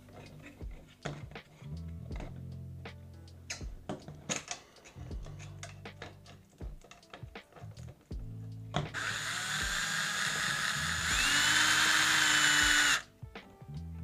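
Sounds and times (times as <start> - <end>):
power screwdriver motor whine: 8.9 - 13.0.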